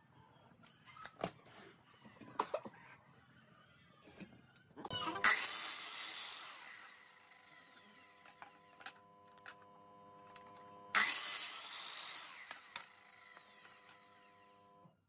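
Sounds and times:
miter saw cutting board: 0:05.2 - 0:08.6, 0:11.0 - 0:14.8
saw motor whine: 0:05.2 - 0:14.9.

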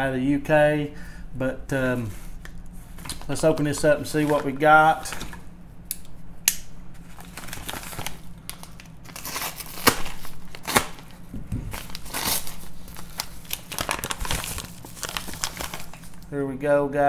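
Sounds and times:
packaging crinkling and rustling: 0:02.0 - 0:05.4, 0:07.0 - 0:16.3.

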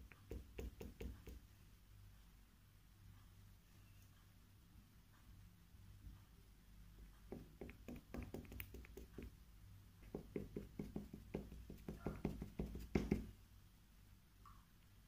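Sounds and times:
pencil tapping on paper: 0:00.0 - 0:01.5, 0:07.2 - 0:09.4, 0:10.0 - 0:13.4.

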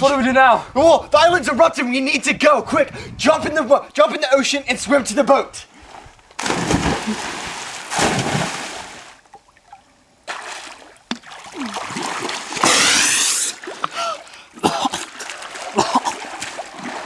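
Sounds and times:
water sloshing: 0:05.8 - 0:17.0
people jumping into pool splash: 0:06.4 - 0:09.2, 0:10.3 - 0:17.0
rush of water: 0:11.2 - 0:17.0.

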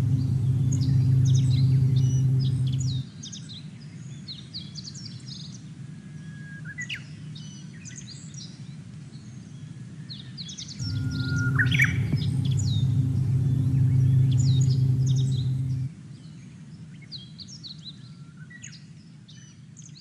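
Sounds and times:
bush warbler song: 0:00.0 - 0:03.0, 0:10.8 - 0:15.9
low steady rumble: 0:00.0 - 0:03.0, 0:10.8 - 0:15.9.

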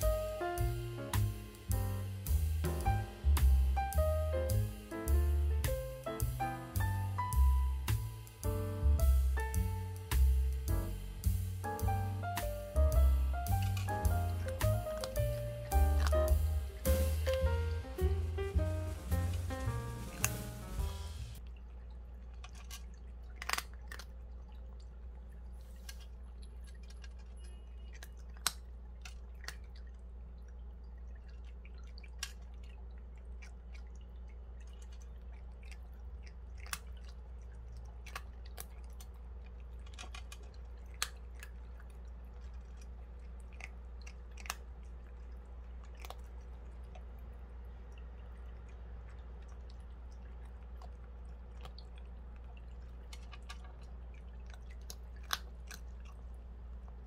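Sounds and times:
steady low hum: 0:00.0 - 0:23.4, 0:32.5 - 0:57.0
cat crunching dry kibble: 0:13.6 - 0:17.9, 0:22.3 - 0:24.4, 0:25.7 - 0:29.9, 0:34.6 - 0:47.6, 0:48.4 - 0:57.0.

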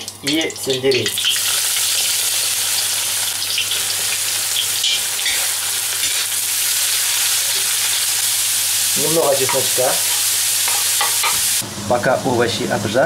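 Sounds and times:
vegetables sizzling in hot oil: 0:00.0 - 0:11.6
metal spoon stirring vegetables: 0:04.8 - 0:06.4, 0:09.2 - 0:11.5.

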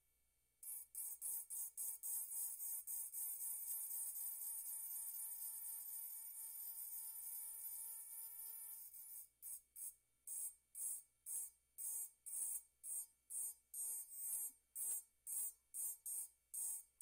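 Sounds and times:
engraving tool whining on glass: 0:03.7 - 0:09.2.

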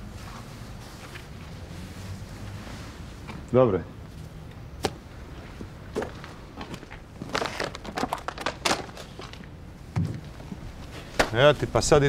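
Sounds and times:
shoes scuffing on pavement: 0:04.8 - 0:09.3.

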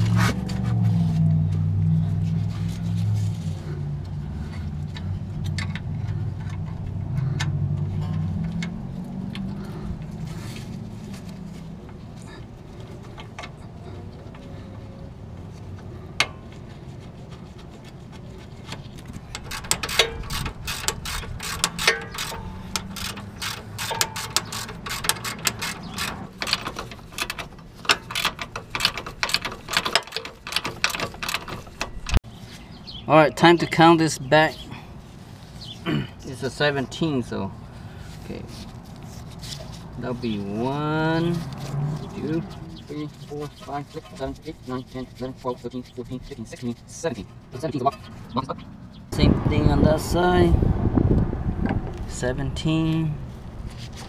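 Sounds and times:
metallic clicks and clinks of tools: 0:19.3 - 0:32.2.

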